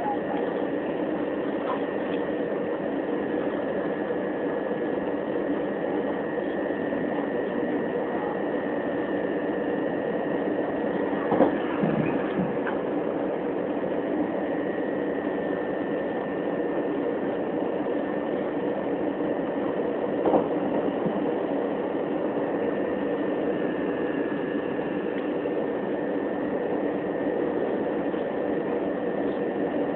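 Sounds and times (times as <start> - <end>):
train wheels rumbling on rail: 0.0 - 29.9.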